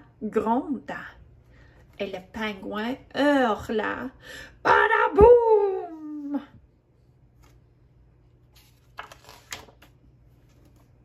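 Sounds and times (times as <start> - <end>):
book page turning: 7.3 - 11.0.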